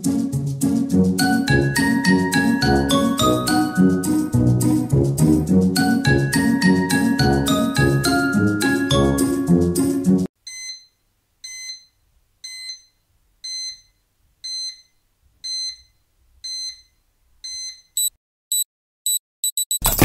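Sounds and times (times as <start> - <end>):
tinkly background music: 1.2 - 4.8, 5.8 - 9.7
electronic alarm beeping: 17.5 - 20.0.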